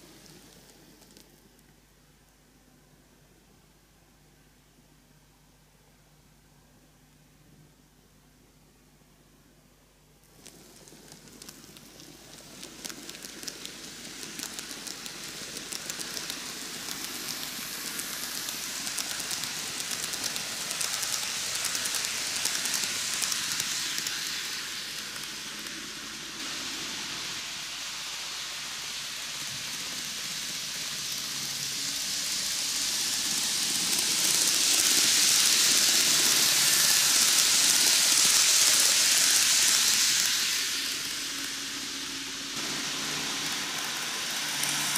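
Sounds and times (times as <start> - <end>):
model train wheels rattling: 10.3 - 44.9.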